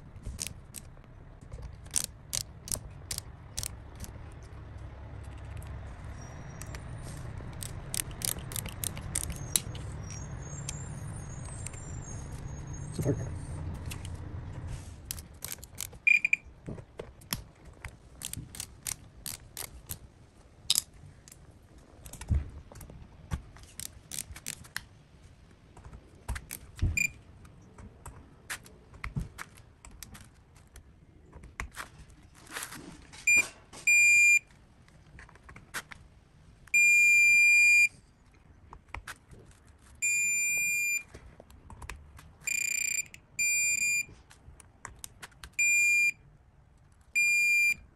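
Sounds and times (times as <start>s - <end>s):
torque wrench ratcheting clicks: 1.9s - 4.1s, 7.6s - 9.8s, 15.1s - 16.0s, 18.2s - 20.0s, 23.8s - 24.6s
high electronic beeps: 16.1s - 16.5s, 42.5s - 44.1s, 47.2s - 47.8s.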